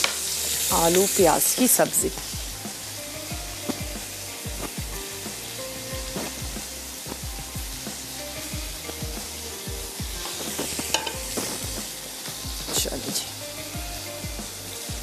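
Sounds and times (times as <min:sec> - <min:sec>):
faint background music: 0:00.0 - 0:15.0
food sizzling in a pan: 0:00.0 - 0:15.0
spoon scraping cookware: 0:10.3 - 0:11.7.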